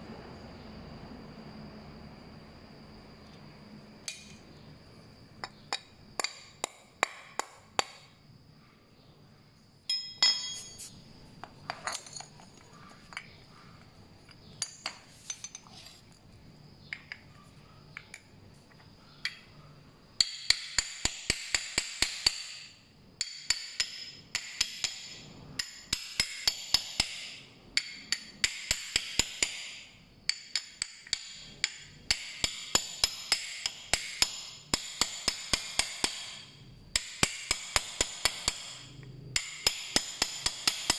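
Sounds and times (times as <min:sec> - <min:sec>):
metal parts clicking and knocking: 0:09.9 - 0:16.1
wrench hammering on metal: 0:20.2 - 0:40.9.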